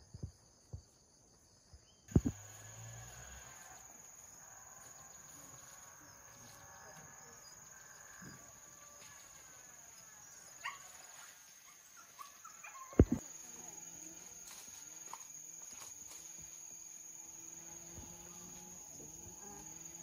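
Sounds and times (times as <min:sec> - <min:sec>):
insects chirring: 0:00.0 - 0:20.0.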